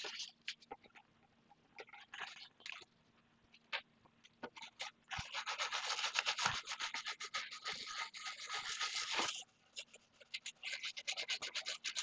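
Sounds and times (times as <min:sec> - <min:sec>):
brush scrubbing circuit board: 0:05.1 - 0:12.0.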